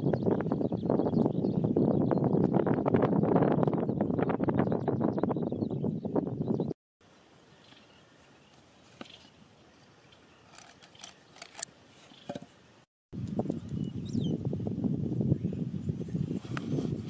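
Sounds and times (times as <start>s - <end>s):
handling rustling and scraping: 10.4s - 12.6s.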